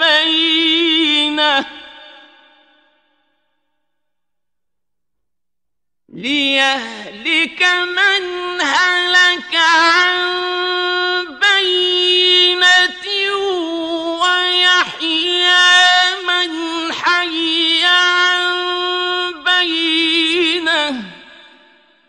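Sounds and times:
man reciting melodically: 0.0 - 2.2, 6.1 - 21.7.

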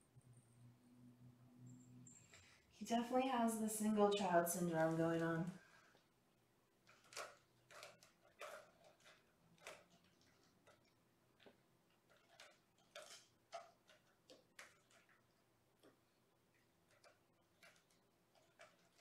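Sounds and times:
kitten tapping and scratching: 6.8 - 19.0.

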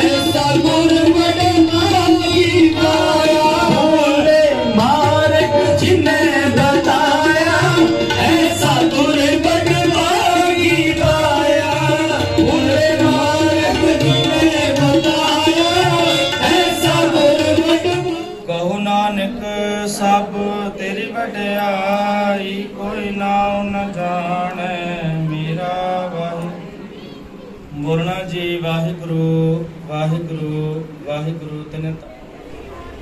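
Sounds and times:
harmonium drone: 0.0 - 18.6
tabla: 0.0 - 20.3
devotional singing: 0.0 - 33.0.

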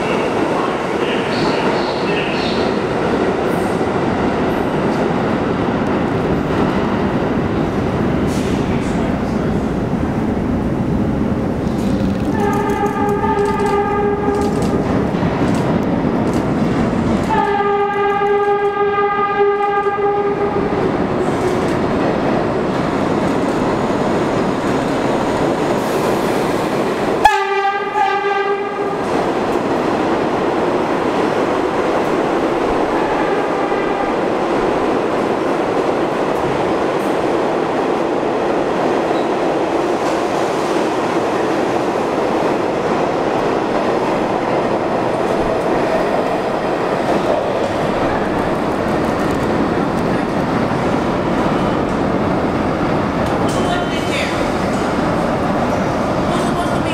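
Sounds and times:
train cars rumbling and clattering: 0.0 - 56.9
train horn blasts: 12.3 - 14.7, 17.3 - 20.7, 27.2 - 29.0, 33.0 - 34.1.

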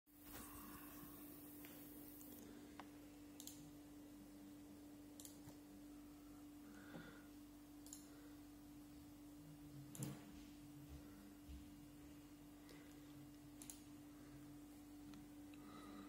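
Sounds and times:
low hum: 0.2 - 16.0
computer mouse clicks: 1.7 - 3.7, 5.2 - 5.6, 7.8 - 8.2, 9.9 - 10.2, 13.6 - 13.9.

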